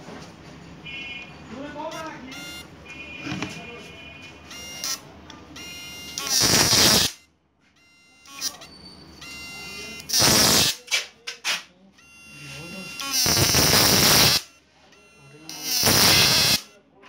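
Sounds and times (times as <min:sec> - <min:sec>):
buzzing hum: 0:04.5 - 0:07.3, 0:08.3 - 0:10.8, 0:12.0 - 0:14.6, 0:15.5 - 0:16.7
electric arc crackling: 0:06.2 - 0:07.2, 0:10.1 - 0:10.8, 0:13.0 - 0:14.5, 0:15.6 - 0:16.6
short electric snaps: 0:06.2 - 0:07.2, 0:10.1 - 0:11.7, 0:13.0 - 0:14.5, 0:15.6 - 0:16.6.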